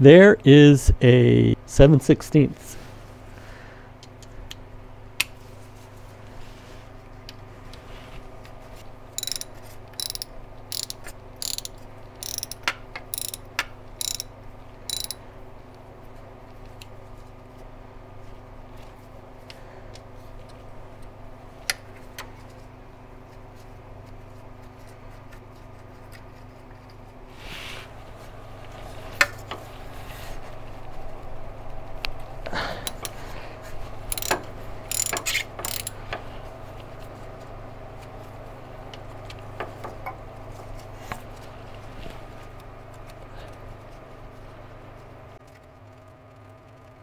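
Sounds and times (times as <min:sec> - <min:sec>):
steady low hum: 0:00.0 - 0:47.0
ratchet wrench clicking: 0:09.2 - 0:14.3, 0:14.9 - 0:15.2, 0:32.8 - 0:33.2, 0:34.1 - 0:36.0.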